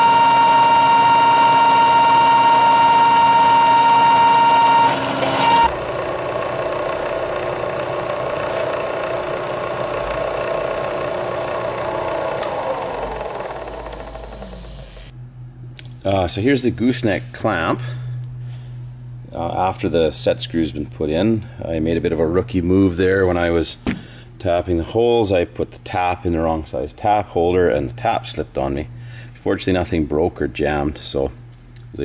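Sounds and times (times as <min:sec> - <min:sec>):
high-pitched squeal: 0:00.0 - 0:05.8
milling machine cutting steel: 0:00.0 - 0:15.1.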